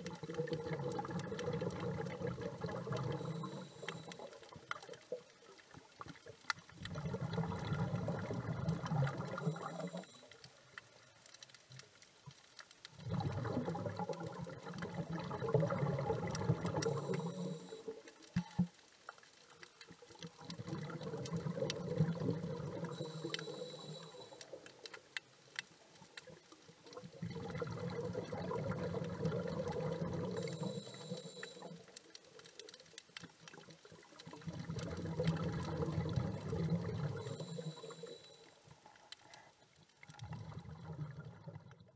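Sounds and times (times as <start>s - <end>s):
regulator inhalation hiss: 16.8s - 17.9s, 23.0s - 24.4s, 30.4s - 31.8s, 37.2s - 38.5s.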